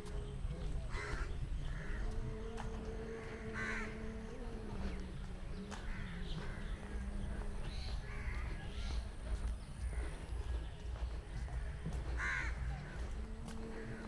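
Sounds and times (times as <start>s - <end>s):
low outdoor rumble: 0.0s - 14.0s
crows cawing: 0.9s - 4.3s, 5.7s - 9.1s, 9.8s - 10.6s, 11.3s - 14.0s.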